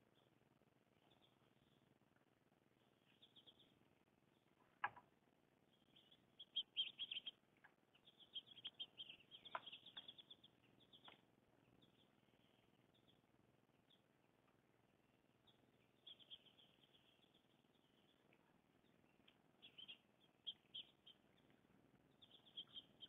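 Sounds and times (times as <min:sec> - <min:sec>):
small songbirds chirping: 0:00.0 - 0:23.0.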